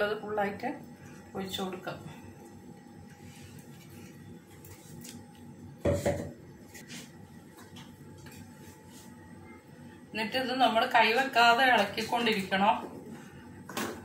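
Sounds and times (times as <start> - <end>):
kitchenware clunk: 5.9 - 6.4.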